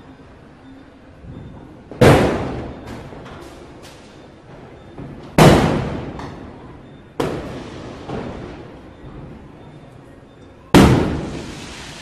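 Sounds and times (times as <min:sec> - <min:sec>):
fireworks bangs with echo: 0:02.0 - 0:02.8, 0:05.4 - 0:06.2, 0:07.2 - 0:08.6, 0:10.7 - 0:12.0.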